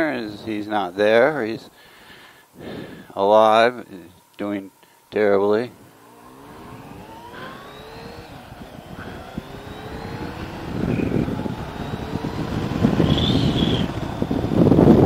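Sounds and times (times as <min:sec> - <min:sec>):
motorcycle engine accelerating: 0:05.7 - 0:15.0
wind rush: 0:05.8 - 0:15.0.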